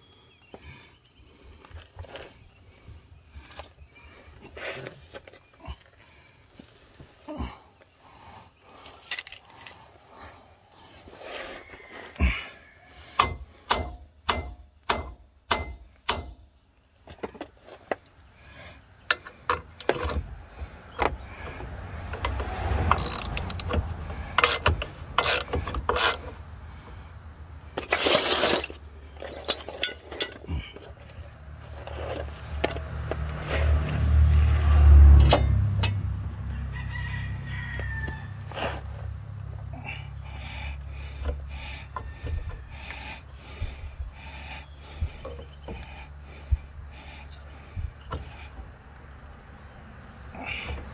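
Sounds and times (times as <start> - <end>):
socket ratchet clicking: 22.9 - 26.2.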